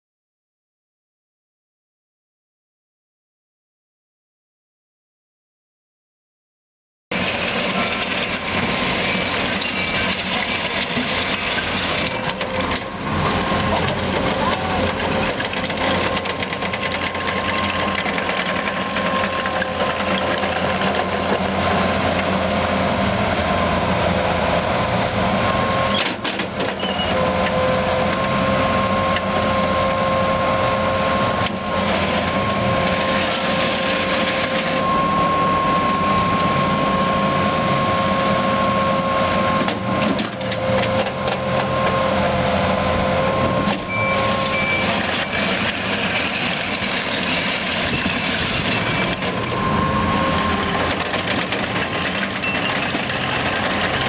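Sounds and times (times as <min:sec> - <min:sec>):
diesel engine running: 0:07.1 - 0:54.0
steady whine: 0:27.1 - 0:54.0.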